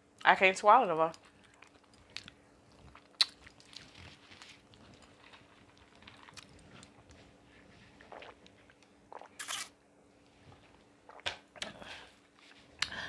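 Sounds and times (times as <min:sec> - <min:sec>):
person chewing: 0:01.2 - 0:09.7
person sipping a drink: 0:01.4 - 0:09.8, 0:10.5 - 0:12.2.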